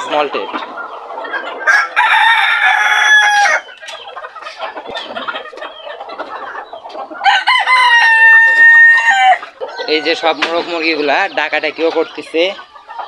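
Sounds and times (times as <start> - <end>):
hens clucking: 0.0 - 13.0
rooster crowing: 1.7 - 3.6, 7.2 - 10.1.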